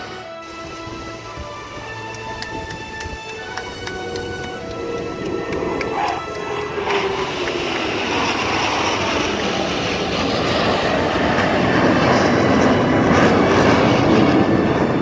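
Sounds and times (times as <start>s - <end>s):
jets roaring overhead: 0.0s - 15.0s.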